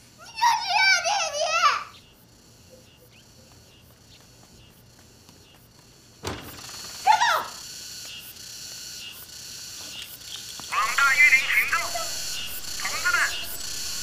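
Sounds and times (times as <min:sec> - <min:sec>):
high insect drone: 0:00.0 - 0:14.0
woman shouting: 0:07.0 - 0:07.6.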